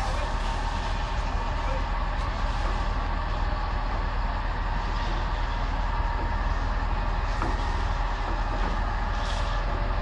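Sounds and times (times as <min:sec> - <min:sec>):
diesel engine running: 0:00.0 - 0:10.0.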